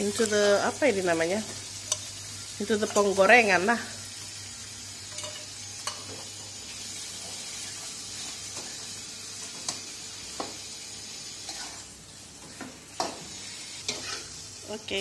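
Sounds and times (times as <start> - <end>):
food sizzling in a wok: 0.0 - 15.0
spatula scraping a pan: 11.4 - 11.9, 13.8 - 14.4.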